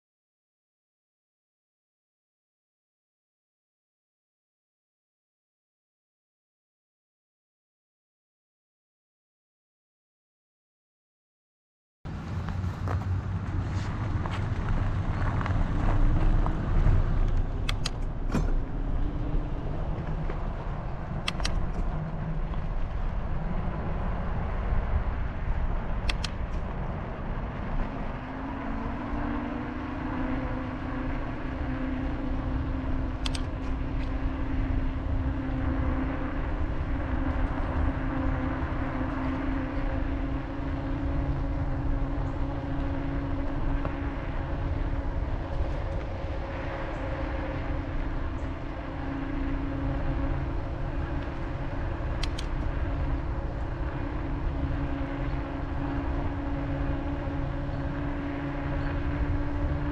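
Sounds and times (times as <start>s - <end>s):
steady low hum: 12.1s - 59.9s
wind and road rumble: 12.1s - 59.9s
sharp clicks: 17.3s - 18.1s, 21.2s - 21.9s, 26.0s - 26.6s, 33.2s - 33.8s, 52.2s - 52.7s.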